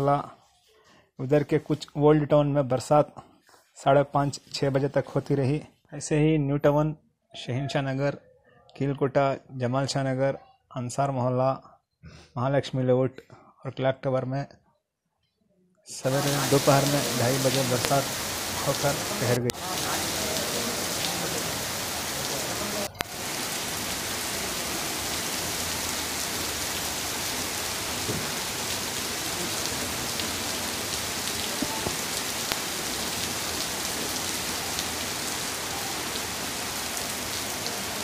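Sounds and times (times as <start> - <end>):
heavy rain on pavement: 16.0 - 38.0.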